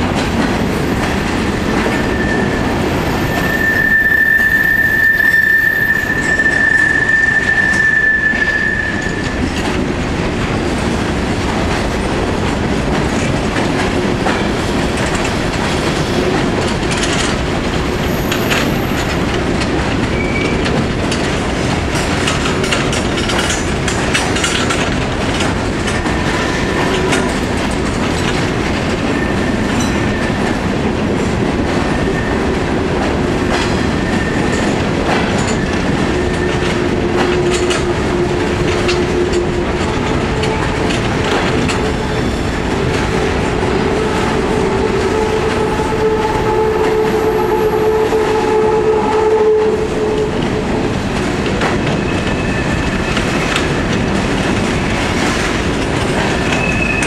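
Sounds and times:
train cars rumbling past: 0.0 - 57.0
metallic wheel squeals: 2.0 - 9.4, 56.4 - 57.0
wheels clicking over rail joints: 9.4 - 44.8.

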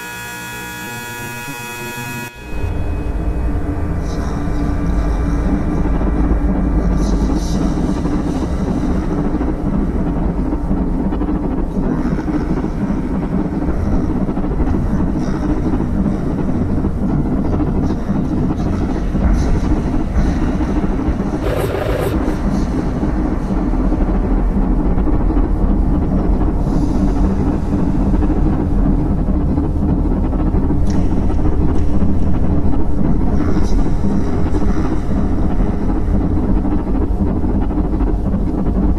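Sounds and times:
low rumbling drone: 2.3 - 18.5, 19.1 - 38.9.

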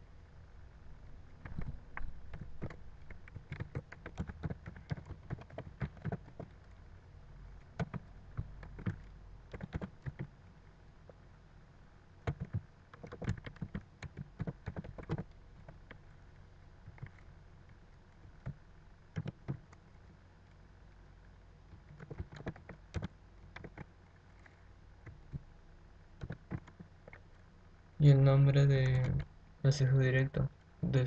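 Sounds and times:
keyboard typing clicks: 1.4 - 6.6, 7.6 - 10.3, 12.2 - 16.0, 18.4 - 19.8, 21.7 - 23.9, 26.2 - 27.2.

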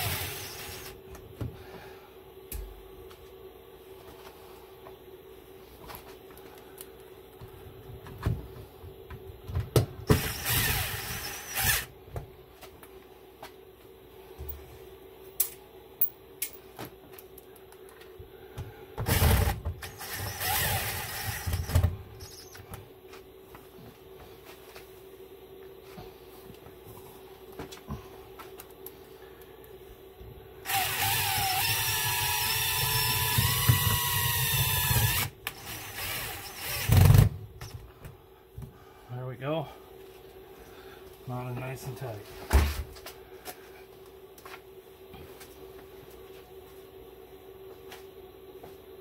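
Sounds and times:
faint steady hum: 0.0 - 49.0
cordless drill driving screws: 10.2 - 11.9, 19.1 - 21.8, 30.7 - 37.2.

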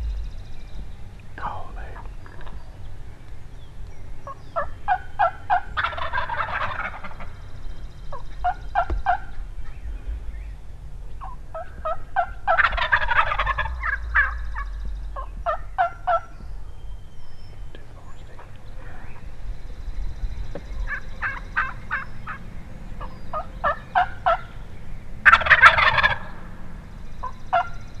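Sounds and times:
turkey yelping notes: 4.2 - 7.4, 8.1 - 9.8, 11.2 - 16.4, 20.8 - 22.4, 23.0 - 24.6, 25.2 - 26.4, 27.2 - 27.8
turkey gobbling: 4.2 - 9.8, 11.1 - 16.4, 20.6 - 24.6, 25.2 - 26.5, 27.2 - 27.8.

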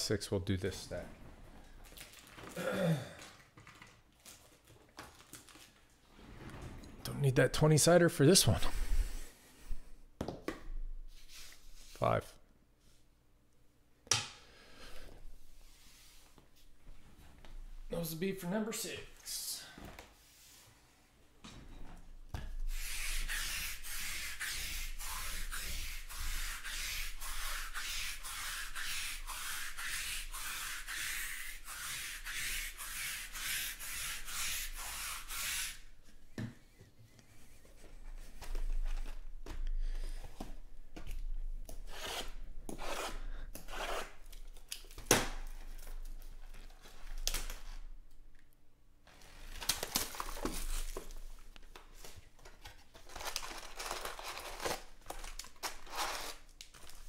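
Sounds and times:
plastic shrink-wrap crinkling: 1.6 - 2.6, 3.2 - 6.0, 49.1 - 51.8, 52.6 - 57.0
lint roller peeling rasp: 22.7 - 35.8, 41.9 - 44.2.

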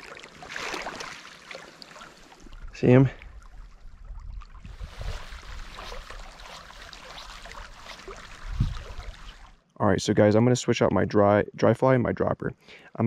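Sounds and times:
shallow river flowing: 0.0 - 9.7.

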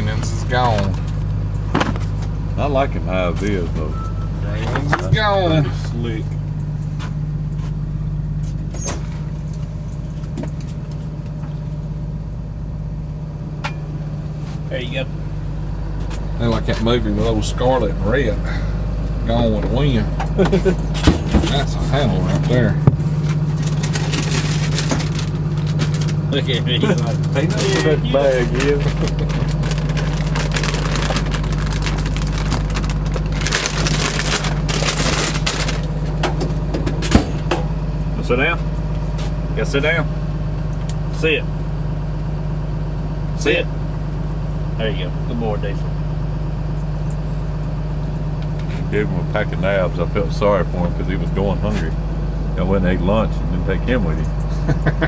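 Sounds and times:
engine idling hum: 0.0 - 55.0
plastic wrapper crinkling: 23.2 - 26.4, 27.2 - 36.1.

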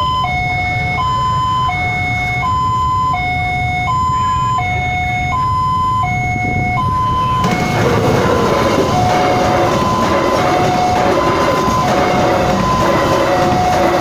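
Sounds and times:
diesel locomotive arriving: 0.0 - 14.0
two-tone level crossing alarm: 0.0 - 14.0.

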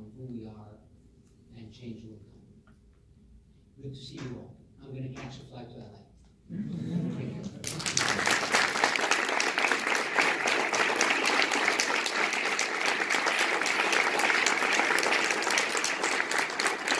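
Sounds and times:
audience applauding: 7.4 - 16.9.

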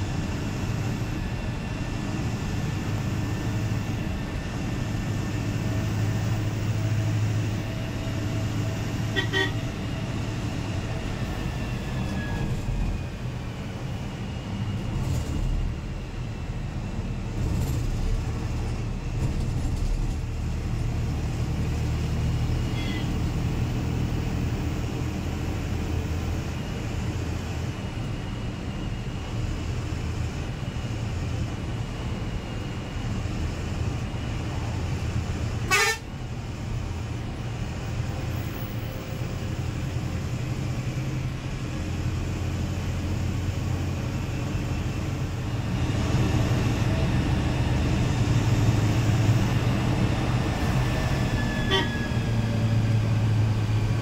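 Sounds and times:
bus engine hum and road noise: 0.0 - 54.0
horn toots: 9.1 - 9.6, 35.7 - 36.1, 51.6 - 52.0.

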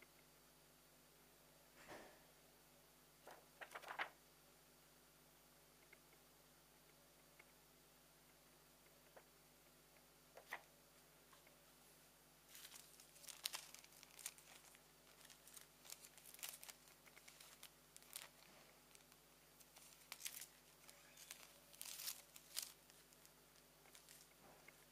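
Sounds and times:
plastic film crinkling: 3.6 - 4.2, 12.5 - 24.9.

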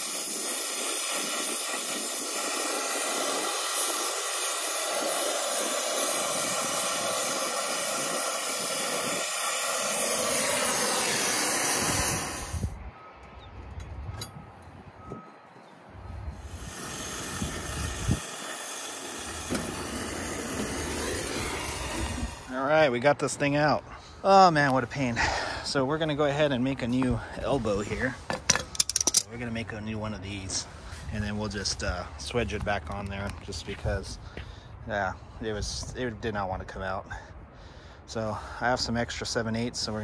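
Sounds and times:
torch flame hissing: 0.0 - 12.8, 16.3 - 22.8.

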